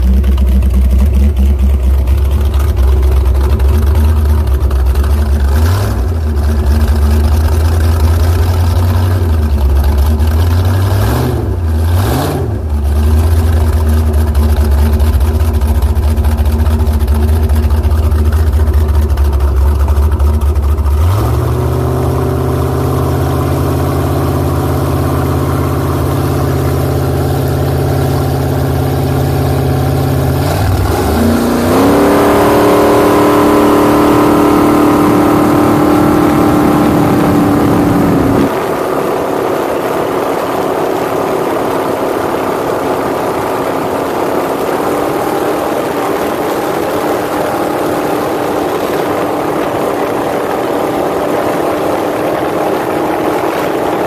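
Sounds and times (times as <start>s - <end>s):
speedboat engine running hard: 0.0s - 54.0s
steady rushing noise: 12.4s - 54.0s.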